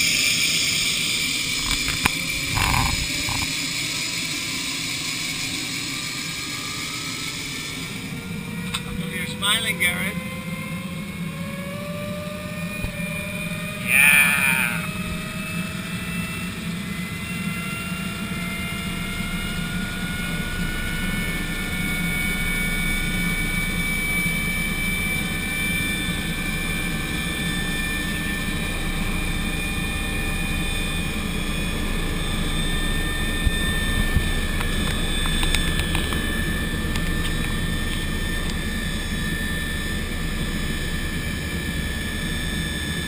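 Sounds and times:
helicopter engine and rotor hum: 0.0 - 43.0
wavering voice-like cry: 13.7 - 15.1.

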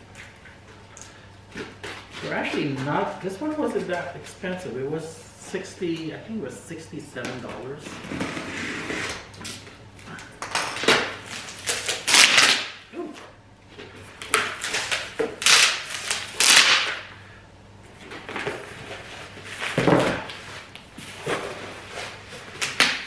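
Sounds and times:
box cutter slitting tape: 10.8 - 12.8, 14.3 - 17.1.

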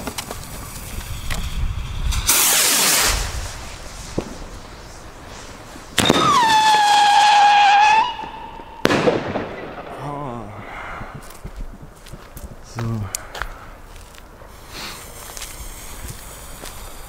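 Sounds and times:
firework rocket launch hiss: 0.0 - 9.7, 14.5 - 17.0
sharp firework crack: 0.0 - 10.4, 14.5 - 17.0
firework whistle: 0.4 - 9.7.

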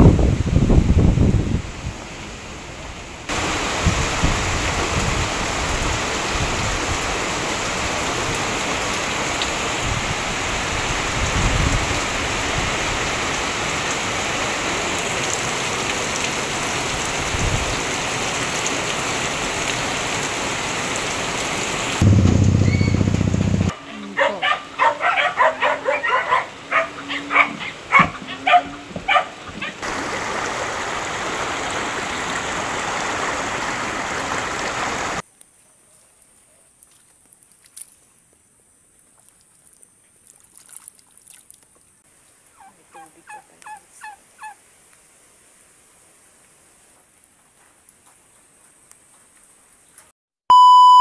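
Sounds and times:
heavy rain on a thatched roof: 0.0 - 23.8, 27.8 - 35.2
loud low rumble: 22.0 - 23.7.

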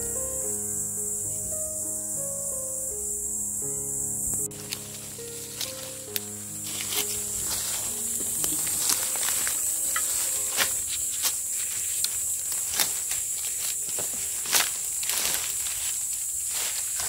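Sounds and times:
background music: 0.0 - 12.5
insects chirping: 0.0 - 17.0
footsteps crunching on dry leaves: 4.4 - 17.0
twigs snapping: 4.6 - 17.0.

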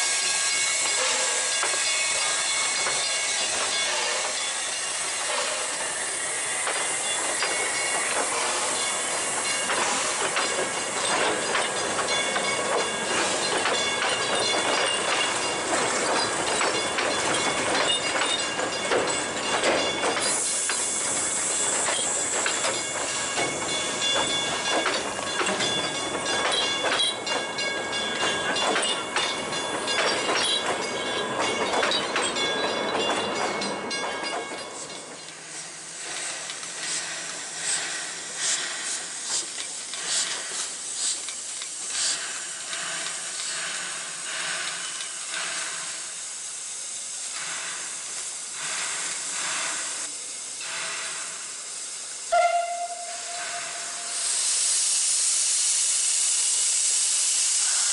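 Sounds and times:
thin steady wheel squeal: 0.0 - 46.1
train wheels clattering: 0.0 - 54.8
steady hiss of steam: 0.0 - 57.9
steam locomotive exhaust chuffs: 0.0 - 57.9.

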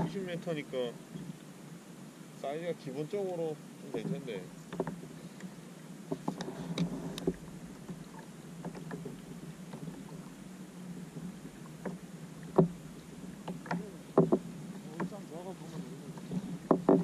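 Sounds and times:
water lapping against kayak hull: 0.0 - 17.0
knocks and slaps on hull: 3.9 - 5.0, 6.1 - 10.3, 11.0 - 15.4, 16.1 - 17.0.

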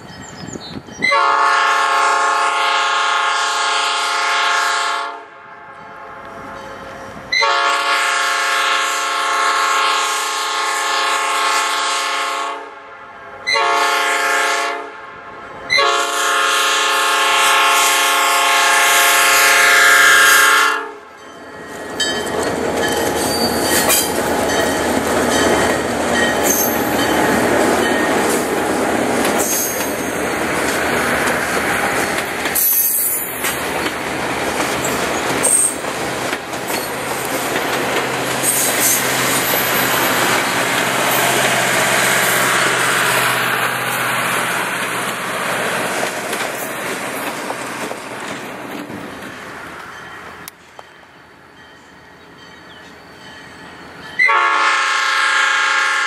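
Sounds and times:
train cars rumbling on rails: 0.0 - 5.0, 13.3 - 56.0
train air horn blasts: 1.0 - 21.1, 54.2 - 56.0.

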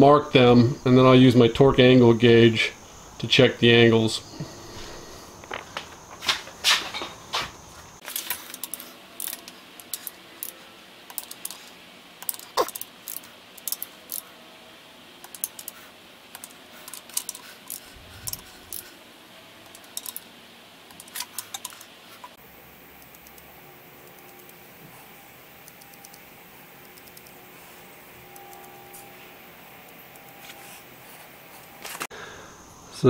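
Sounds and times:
wrench clicking on bolts: 8.1 - 14.2, 15.2 - 18.9, 19.7 - 20.2, 20.9 - 22.3.

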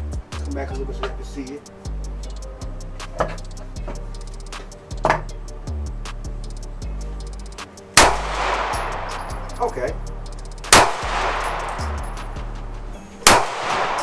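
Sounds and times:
pistol shots with echo: 8.0 - 9.3, 10.7 - 12.1, 13.2 - 14.0.

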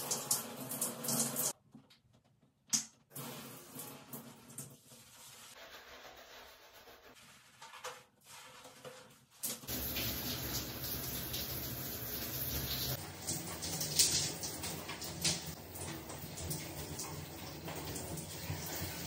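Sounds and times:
hands rubbing lather into hair: 4.8 - 11.5.

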